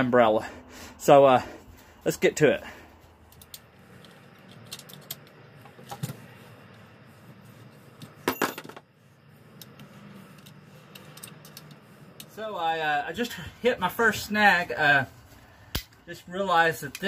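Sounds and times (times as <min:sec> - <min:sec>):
metal and plastic clicks and rattles: 0:03.3 - 0:06.2, 0:10.4 - 0:12.3.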